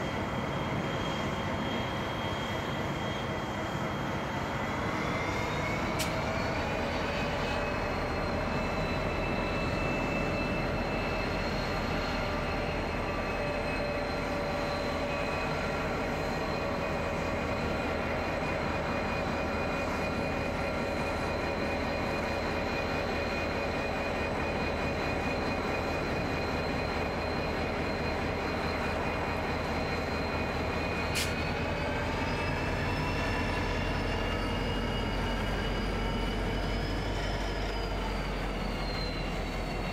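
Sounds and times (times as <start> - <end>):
locomotive engines running: 0.0 - 39.9.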